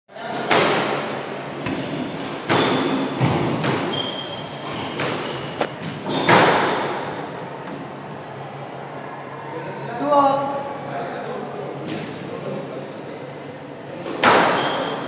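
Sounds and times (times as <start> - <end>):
squash ball impacts: 0.5 - 7.1, 14.2 - 14.9
shoes squeaking on wooden floor: 2.5 - 6.4.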